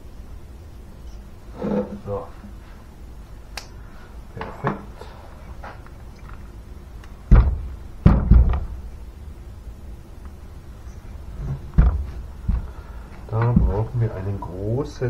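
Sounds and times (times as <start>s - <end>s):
heavy thuds on wooden workbench: 7.3s - 8.8s, 11.4s - 12.8s, 13.4s - 14.0s.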